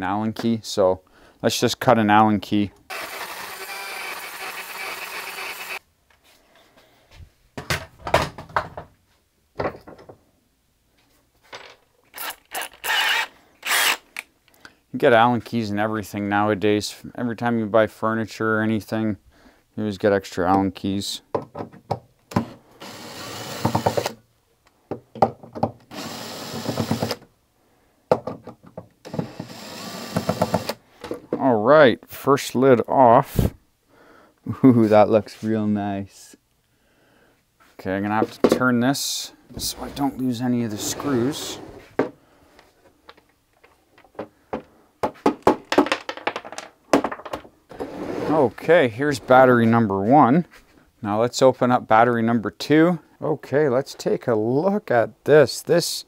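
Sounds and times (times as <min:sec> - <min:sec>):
power drill running: 0:02.9 - 0:05.8, 0:12.8 - 0:14.0, 0:22.8 - 0:24.2, 0:25.9 - 0:27.2, 0:29.1 - 0:30.8.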